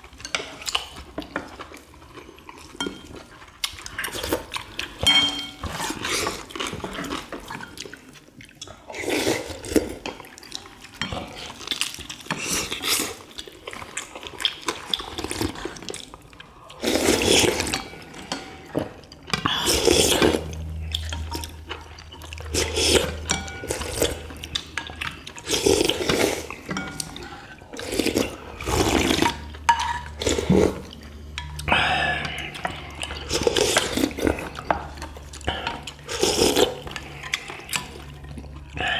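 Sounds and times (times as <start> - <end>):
people chewing: 0.0 - 38.9
people slurping broth: 8.6 - 10.0, 14.7 - 21.8, 22.4 - 29.5, 30.2 - 31.0, 31.6 - 38.9.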